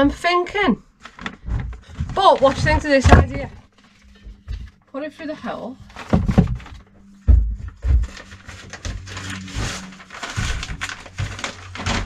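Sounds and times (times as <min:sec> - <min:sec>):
plastic bag rustling: 0:00.9 - 0:04.8, 0:05.8 - 0:12.0
steady low hum: 0:05.7 - 0:12.0
dull knocks: 0:06.0 - 0:08.3.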